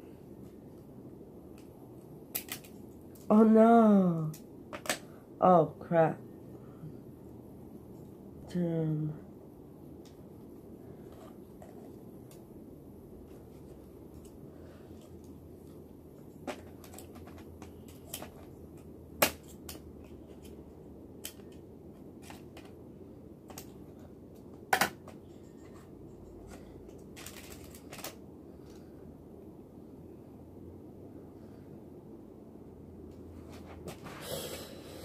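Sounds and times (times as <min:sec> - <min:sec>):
plastic keyboard parts clicking: 0:02.3 - 0:03.3, 0:16.4 - 0:18.5, 0:26.5 - 0:28.8.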